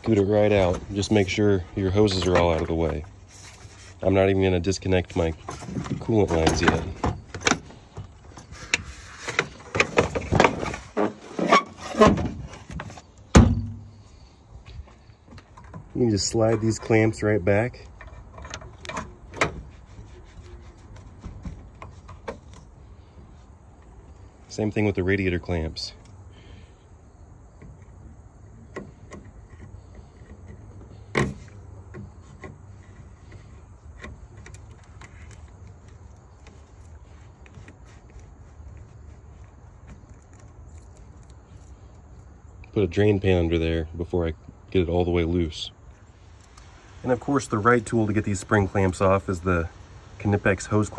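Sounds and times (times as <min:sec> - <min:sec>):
knocks and clunks of parts: 0:05.3 - 0:14.1, 0:14.8 - 0:17.0, 0:17.8 - 0:19.8, 0:28.6 - 0:36.6.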